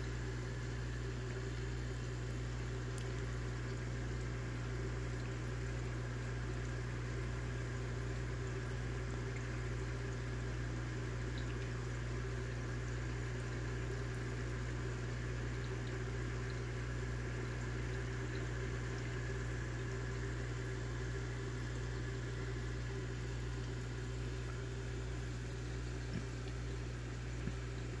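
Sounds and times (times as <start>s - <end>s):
aquarium pump humming: 0.0s - 28.0s
water bubbling: 17.5s - 28.0s.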